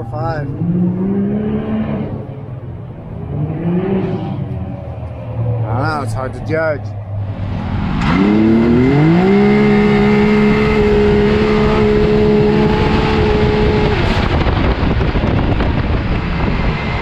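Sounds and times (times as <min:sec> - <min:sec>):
wind and road noise: 0:00.0 - 0:17.0
engine revving at full throttle: 0:00.4 - 0:02.5, 0:03.1 - 0:04.6, 0:07.2 - 0:17.0.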